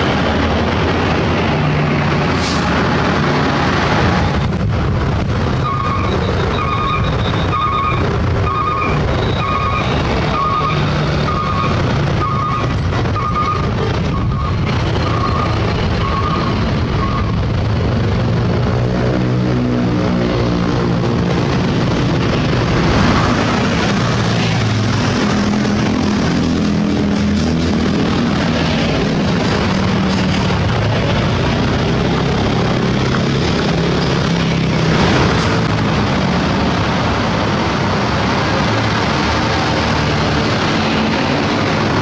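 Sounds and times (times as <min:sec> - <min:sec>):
heavy diesel traffic passing: 0:00.0 - 0:42.0
motorcycles passing: 0:00.0 - 0:42.0.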